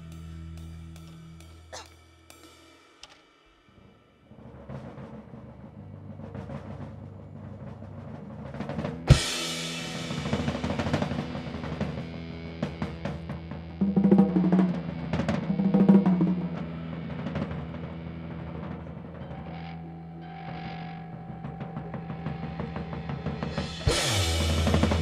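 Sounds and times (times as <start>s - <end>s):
rapid drum rolls: 3.0s - 19.5s, 21.0s - 25.0s
rock band music: 8.8s - 25.0s
cymbal crash: 9.1s - 11.6s, 23.4s - 25.0s.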